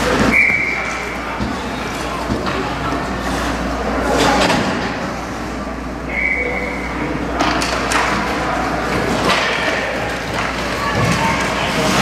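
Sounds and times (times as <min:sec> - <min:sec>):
crowd noise: 0:00.0 - 0:12.0
sharp clacks of sticks and puck: 0:07.4 - 0:12.0
skates on ice: 0:08.8 - 0:12.0.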